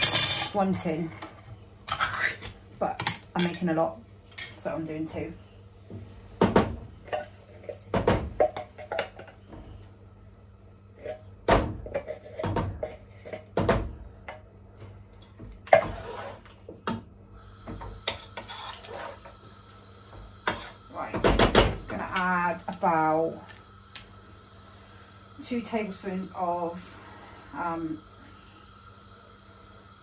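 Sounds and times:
stirring in a pot: 10.9s - 13.6s, 15.7s - 16.7s, 18.0s - 19.5s.

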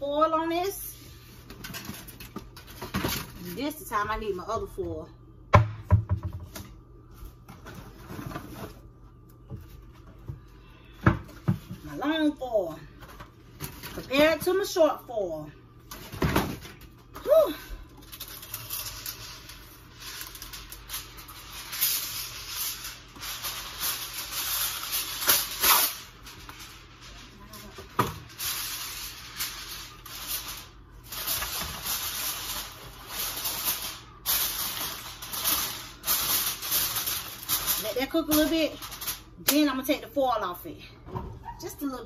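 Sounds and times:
aluminum foil crinkling: 1.2s - 3.8s, 15.9s - 40.0s.

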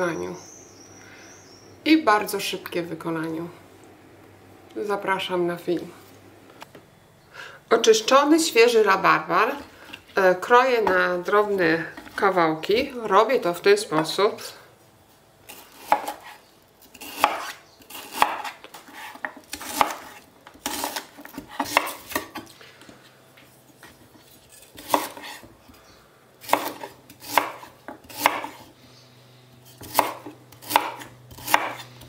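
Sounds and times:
knife chopping on wooden board: 15.8s - 16.4s, 17.0s - 22.5s, 24.8s - 25.5s, 26.4s - 28.6s, 29.8s - 31.9s.

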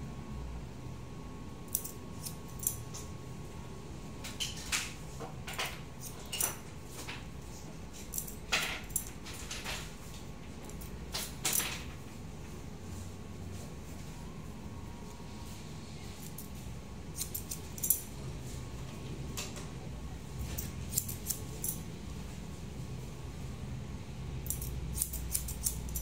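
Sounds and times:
scissors snipping hair: 1.7s - 3.1s, 8.0s - 9.2s, 17.2s - 18.1s, 20.4s - 21.8s, 24.4s - 26.0s.

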